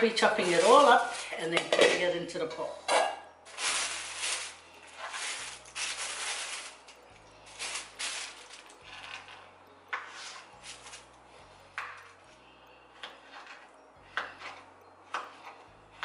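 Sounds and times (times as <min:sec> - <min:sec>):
fruit rustling and scraping: 0:00.0 - 0:02.1, 0:03.5 - 0:11.1.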